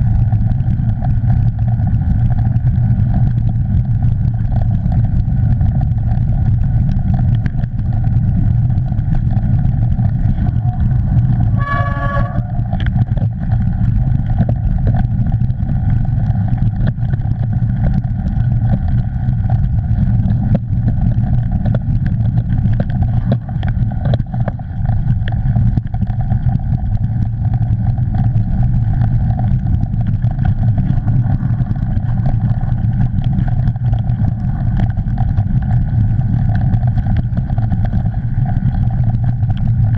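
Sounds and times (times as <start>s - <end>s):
bike rumbling over dirt trail: 0.0s - 39.9s
wind buffeting microphone: 0.0s - 39.9s
high-pitched wavering tone: 11.5s - 12.7s.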